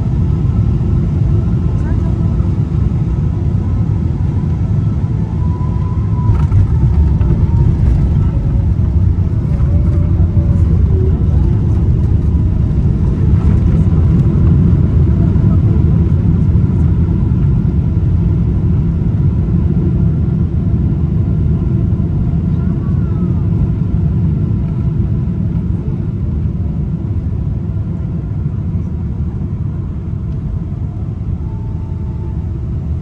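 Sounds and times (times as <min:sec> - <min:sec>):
jet airliner cabin rumble: 0:00.0 - 0:33.0.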